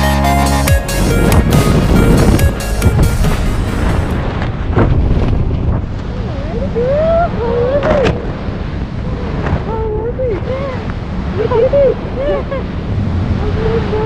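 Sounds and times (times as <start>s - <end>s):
wind buffeting microphone: 0.8s - 14.0s.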